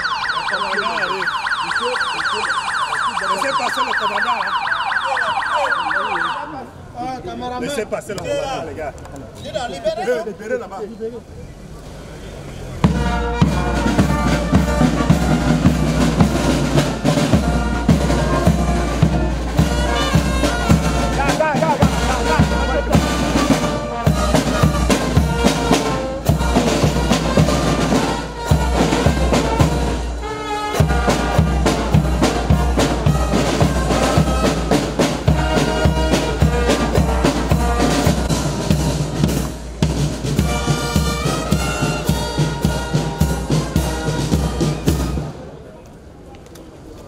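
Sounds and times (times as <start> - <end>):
trumpets: 12.7 - 45.6
bass drum and drums beat: 12.8 - 30.2, 30.8 - 45.2
saxophones: 12.8 - 39.3, 40.3 - 45.4
trombones: 12.8 - 45.5.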